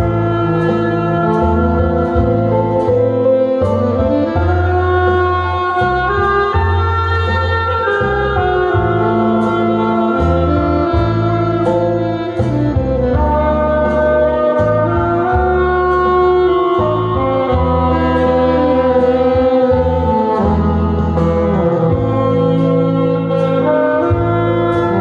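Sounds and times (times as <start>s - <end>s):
backing track with bass and beat: 0.0s - 25.0s
saxophone melody: 0.0s - 25.0s
wind instruments: 0.0s - 25.0s.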